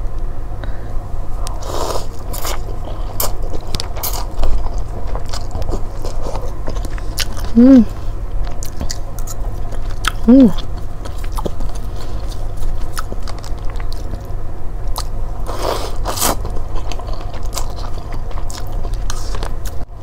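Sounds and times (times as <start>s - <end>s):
chewing with wet clicks: 2.3s - 7.5s, 8.4s - 15.2s, 16.2s - 19.9s.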